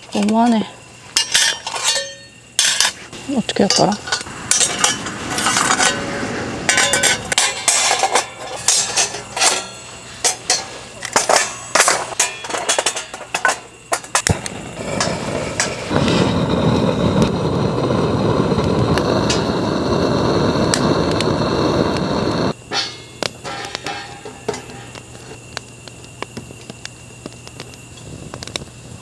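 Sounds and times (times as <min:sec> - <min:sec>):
steel panels clinking: 0:01.2 - 0:03.0, 0:06.7 - 0:14.3, 0:22.7 - 0:25.4
gas torch flame hissing: 0:13.7 - 0:22.6.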